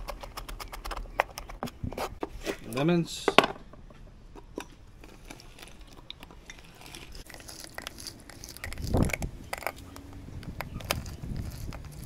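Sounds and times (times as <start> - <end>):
lemon crunching on juicer: 5.0 - 12.0.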